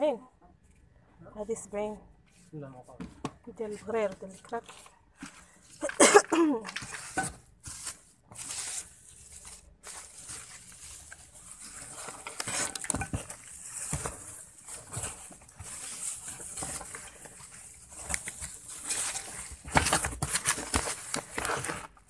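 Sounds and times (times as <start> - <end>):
rustling and handling noise: 0.4 - 22.0.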